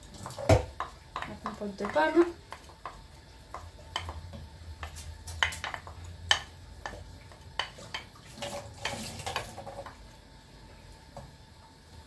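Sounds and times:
utensil clinking and scraping on pan: 0.2 - 10.0.

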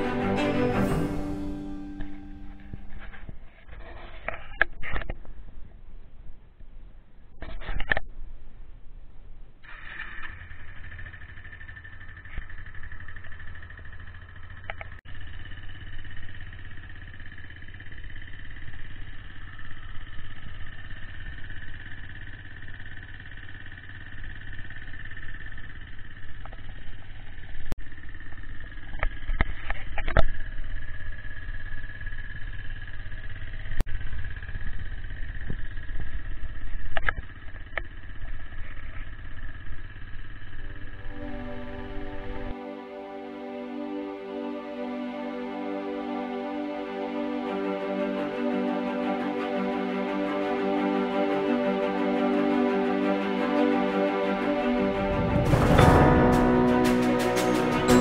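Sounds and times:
motorcycle engine idling: 9.6 - 42.6.

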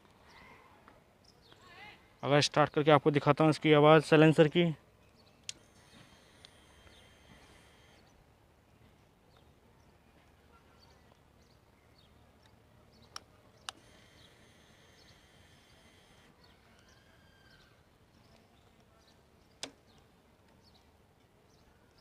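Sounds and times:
sharp clicks: 5.4 - 8.1, 12.4 - 16.9, 19.5 - 20.1.

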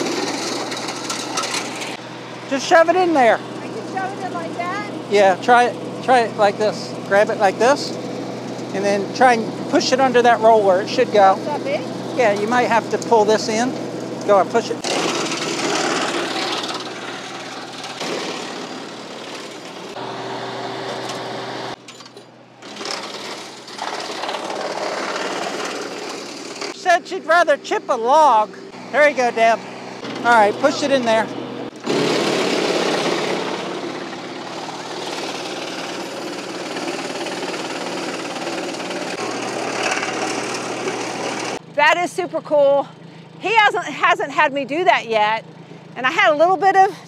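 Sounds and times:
wood chipper chewing branches: 0.0 - 21.9, 22.6 - 41.6
tractor engine running: 0.0 - 42.0.

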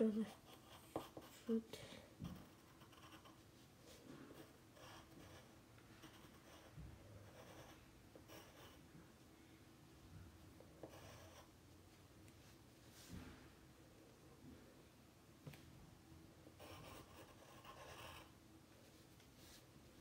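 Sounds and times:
pencil scratching on paper: 0.0 - 1.6, 2.2 - 8.9, 10.8 - 11.6, 16.6 - 18.4.

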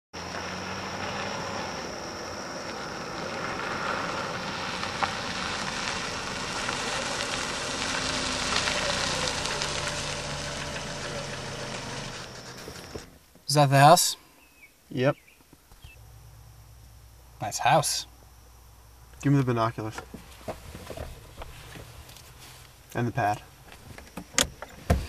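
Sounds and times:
car engine running low: 0.2 - 13.3
tyres crackling on gravel: 0.2 - 14.1.

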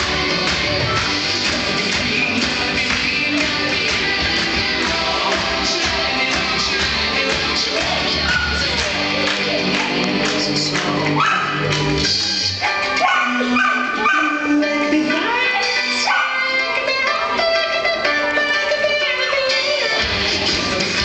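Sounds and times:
recorded music: 0.0 - 21.0
dog barking: 11.2 - 11.6, 12.6 - 14.5, 16.0 - 16.5.

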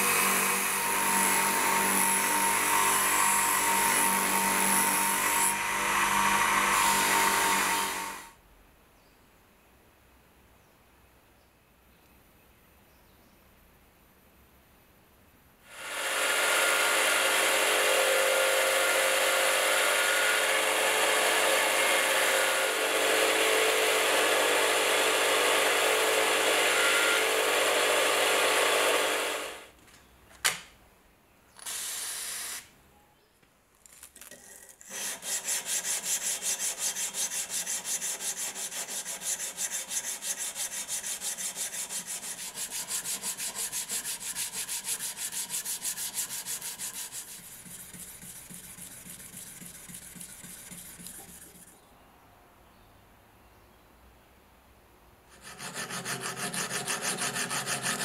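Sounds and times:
bench grinder grinding steel blade: 0.0 - 8.3, 34.3 - 51.7, 55.3 - 58.0.

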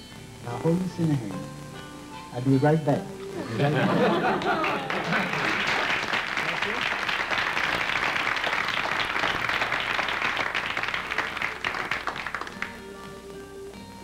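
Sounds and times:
music with held notes: 0.0 - 4.8, 9.8 - 14.0
audience applauding: 3.8 - 13.1.

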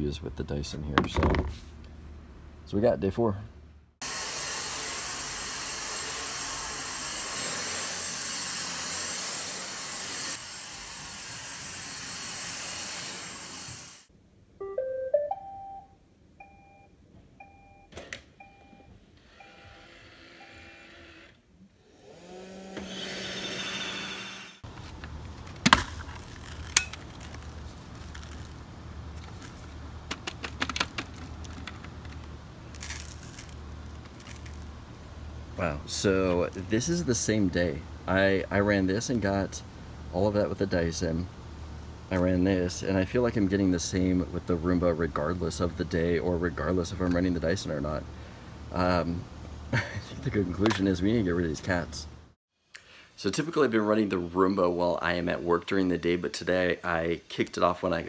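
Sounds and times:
vacuum cleaner hissing on carpet: 4.0 - 14.0
brief rising whir: 19.3 - 24.6.

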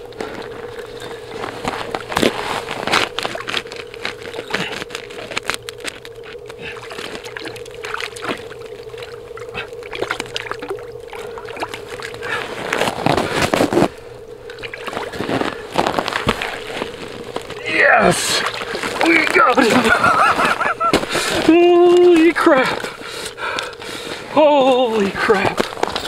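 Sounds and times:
steady hum: 0.0 - 26.0
fish splashing in water: 1.9 - 21.6.

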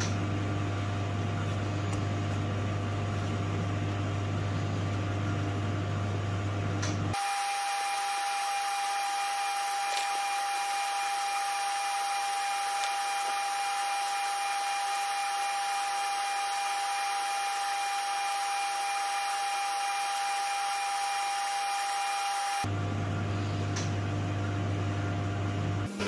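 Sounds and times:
small electric motor whining: 7.1 - 22.7.

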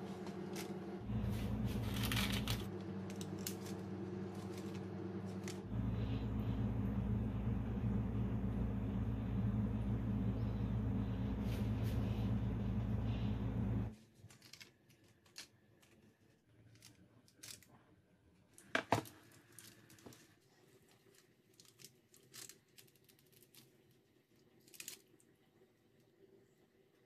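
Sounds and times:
utensil clicks and rustles: 0.0 - 5.7, 13.9 - 25.5
low steady hum: 0.0 - 14.6.

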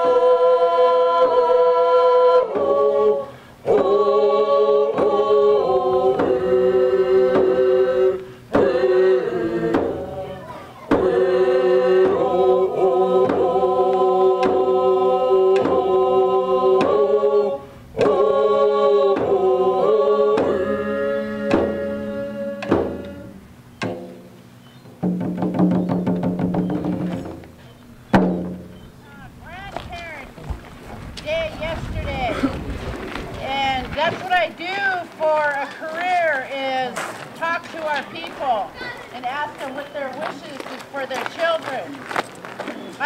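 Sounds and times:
group singing in unison: 0.0 - 23.5
frame drums beating: 4.8 - 17.3, 18.0 - 32.6.

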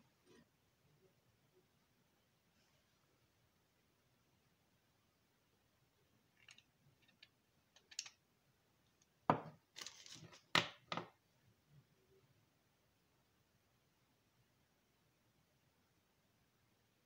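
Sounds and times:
spool knocking on wooden table: 9.3 - 9.5.

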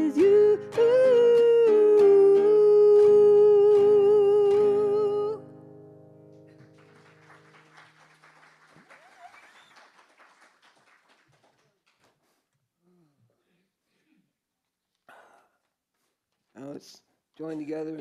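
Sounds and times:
person singing with vibrato: 0.0 - 5.7
faint scattered clapping: 0.2 - 5.0, 6.4 - 12.5.

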